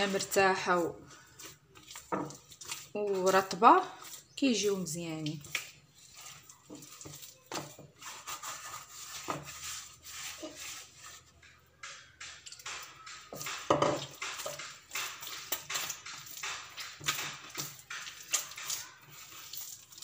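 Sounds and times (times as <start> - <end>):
hands kneading wet dough: 0.0 - 20.0
knocks against clay bowl: 11.8 - 15.1.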